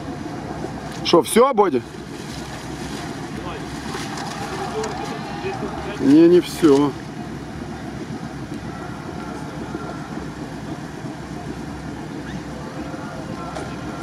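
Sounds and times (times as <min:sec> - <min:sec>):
vehicle engine idling: 0:00.0 - 0:14.0.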